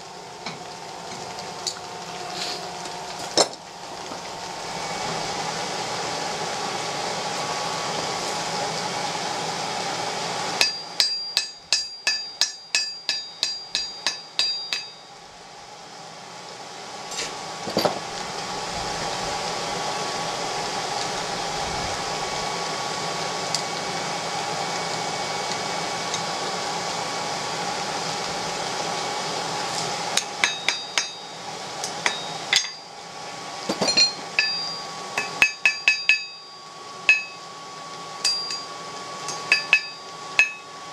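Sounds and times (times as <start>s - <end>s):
steady hum: 0.0s - 40.9s
hammer ringing on anvil: 10.6s - 15.1s, 30.2s - 32.9s, 33.7s - 37.4s, 38.2s - 38.7s, 39.3s - 40.7s.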